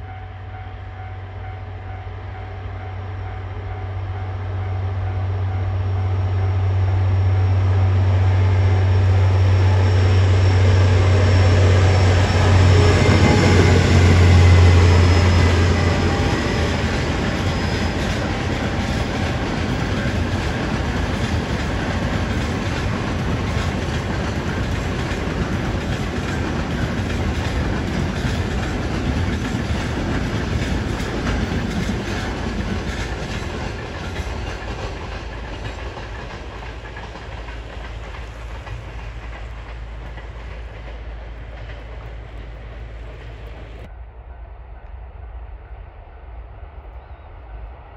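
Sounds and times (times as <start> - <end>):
locomotive engine drone: 0.0 - 44.1
train wheels clattering on rails: 8.5 - 43.9.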